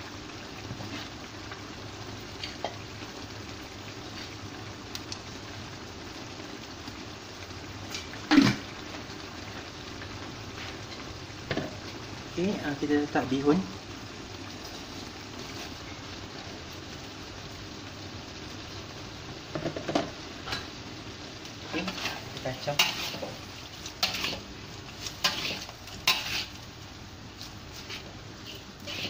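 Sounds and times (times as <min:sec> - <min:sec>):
broth bubbling hiss: 0:00.0 - 0:29.0
metal spatula scraping wok: 0:21.6 - 0:29.0.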